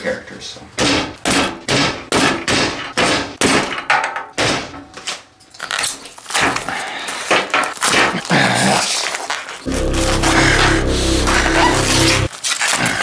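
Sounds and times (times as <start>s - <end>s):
foam crunching and tearing: 5.6s - 6.6s, 7.2s - 13.0s.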